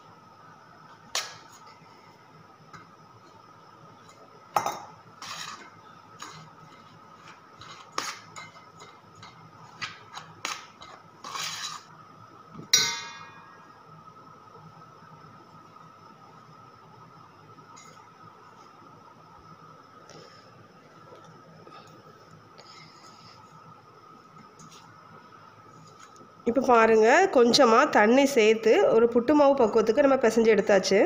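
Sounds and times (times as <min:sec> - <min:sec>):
metal spoon scraping in bowl: 0:10.8 - 0:11.9.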